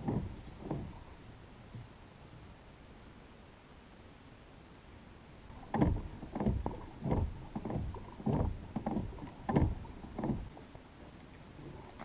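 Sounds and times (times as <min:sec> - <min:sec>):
hollow knocks on dinghy hull: 0:00.0 - 0:01.0, 0:05.5 - 0:10.5.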